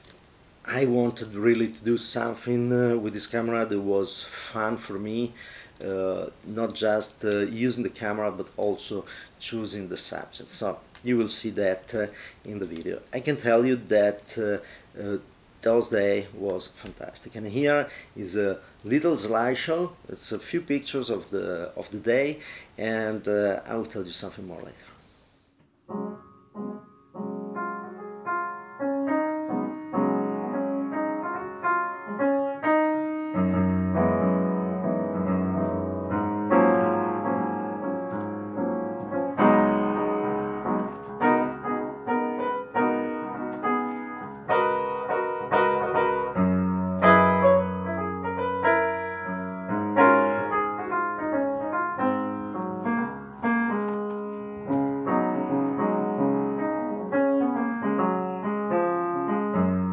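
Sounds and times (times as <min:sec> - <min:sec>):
piano music: 0:25.9 - 0:59.9.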